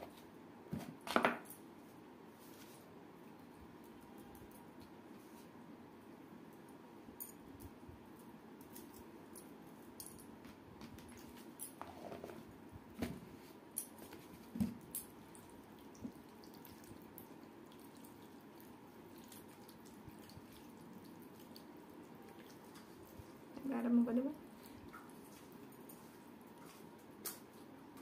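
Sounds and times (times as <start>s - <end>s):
wet squishing of soaked rice: 13.5s - 23.6s, 24.3s - 28.0s
rice squelching in steel bowl: 14.9s - 23.6s.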